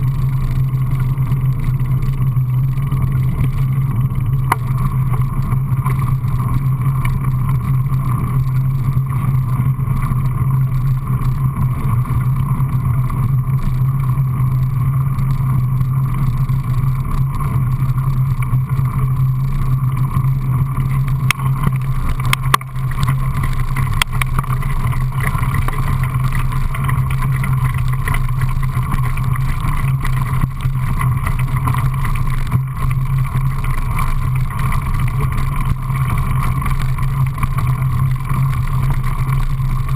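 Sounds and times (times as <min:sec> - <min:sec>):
bike tyres rolling fast: 0:00.0 - 0:39.9
wind over camera: 0:00.0 - 0:39.9.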